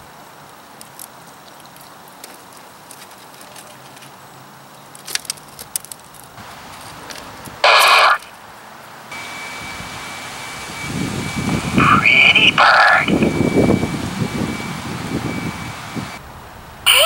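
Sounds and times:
faint radio clicks: 7.1s - 8.3s, 11.8s - 13.3s
loud burst of radio static: 7.6s - 8.3s, 9.2s - 16.2s
radio hiss with high tone: 7.6s - 8.3s, 9.1s - 16.2s.

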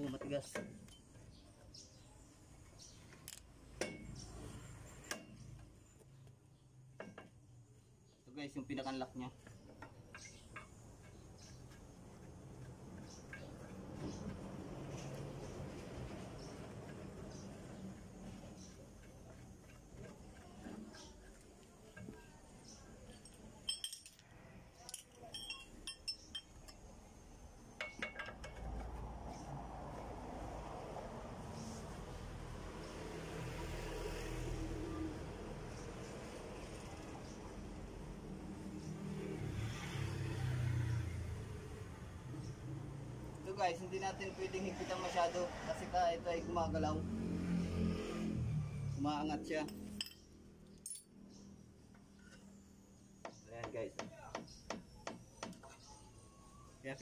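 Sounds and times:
metal tools clinking: 23.0s - 24.2s, 24.8s - 26.8s, 49.6s - 51.2s.

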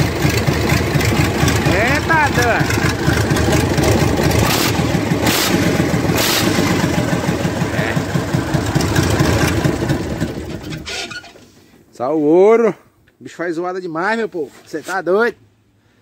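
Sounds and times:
diesel engine running rough: 0.0s - 10.9s
sharp engine blasts: 0.8s - 10.4s.

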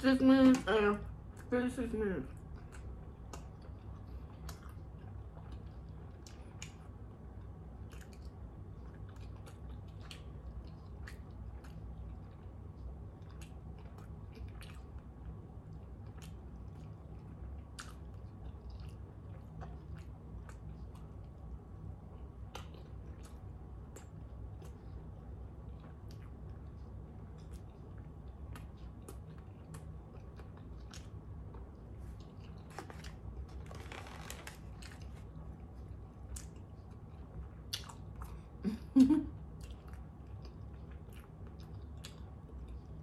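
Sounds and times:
steady low hum: 0.0s - 43.0s
person chewing wet mouth clicks: 2.4s - 7.0s, 22.4s - 25.0s, 25.7s - 32.6s, 37.7s - 38.4s, 39.6s - 42.9s.

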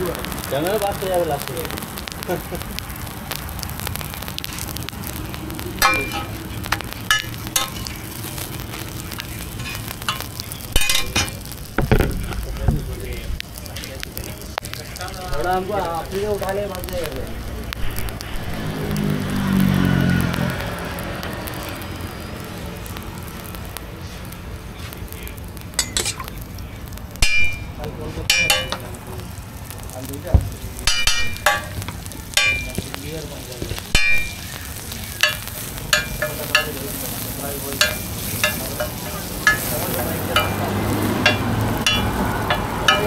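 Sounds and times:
bread sizzling on a griddle: 0.0s - 43.0s
metal spatula clicking on griddle: 25.7s - 26.4s, 30.8s - 32.9s, 33.9s - 43.0s.

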